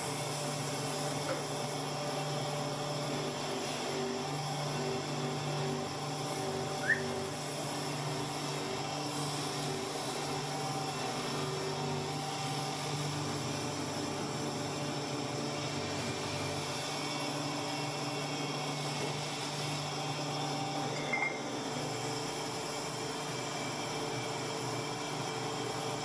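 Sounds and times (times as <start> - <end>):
buffing wheel humming: 6.4 - 7.6.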